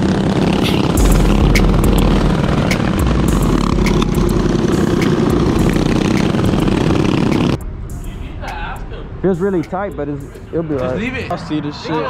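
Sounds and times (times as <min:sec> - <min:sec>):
minibike engine drone: 0:00.0 - 0:07.7.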